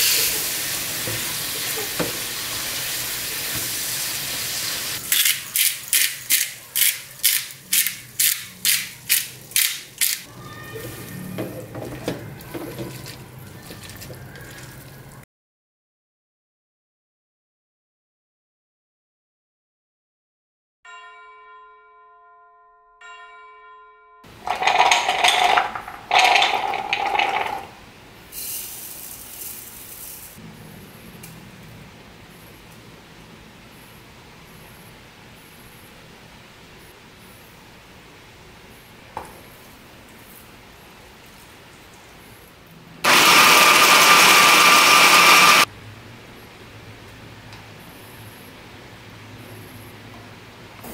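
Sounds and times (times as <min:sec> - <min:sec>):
chickpeas rattling into plastic bowl: 0:24.4 - 0:27.8
hand blender grinding: 0:24.4 - 0:27.8, 0:43.1 - 0:45.7
seeds pouring with fine hiss: 0:28.3 - 0:30.4.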